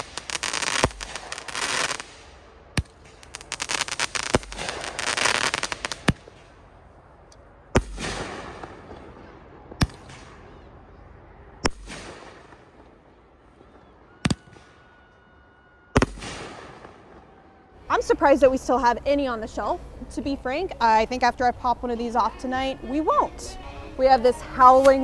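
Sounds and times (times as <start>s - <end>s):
firework crackling pops: 0.0s - 6.6s, 7.8s - 9.2s, 9.8s - 10.4s, 11.6s - 13.0s, 16.0s - 17.2s
firework sharp shots with echo: 0.0s - 6.6s, 7.7s - 10.7s, 11.6s - 13.0s, 13.6s - 14.8s, 16.0s - 17.3s.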